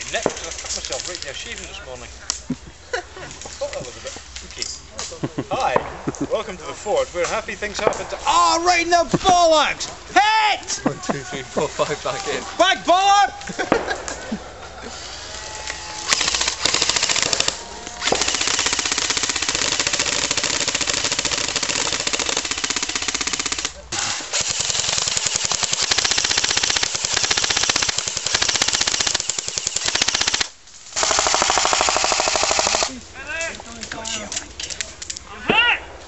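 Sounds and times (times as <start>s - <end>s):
airsoft rifle automatic fire: 16.0s - 32.9s.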